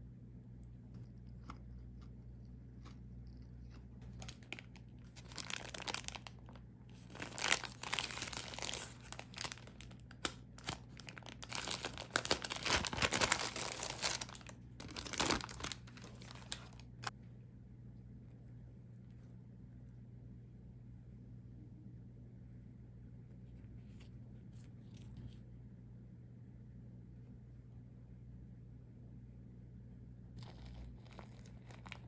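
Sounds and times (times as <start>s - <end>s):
paper wrapper crinkling and tearing: 4.0s - 17.1s, 30.4s - 32.0s.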